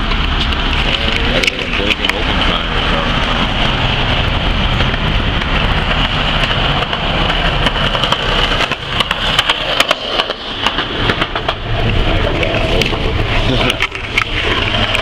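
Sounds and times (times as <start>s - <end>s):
low traffic rumble: 0.0s - 15.0s
sharp clicks and knocks: 4.7s - 15.0s.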